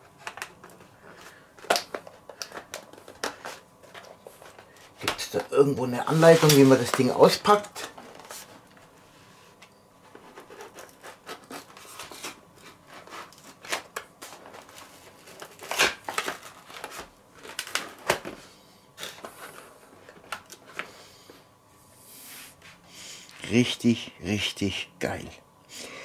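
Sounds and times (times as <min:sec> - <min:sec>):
cardboard rustling and scraping: 0:02.0 - 0:18.4.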